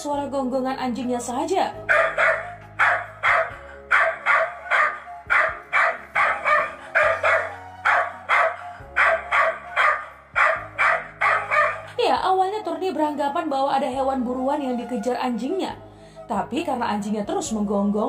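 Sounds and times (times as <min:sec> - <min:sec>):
dog barking: 0:01.9 - 0:12.0.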